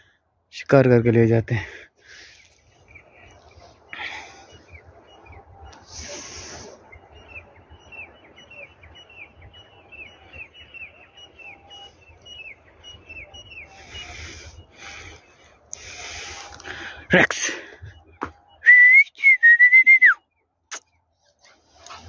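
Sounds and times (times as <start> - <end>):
partridges calling: 2.2 - 18.6.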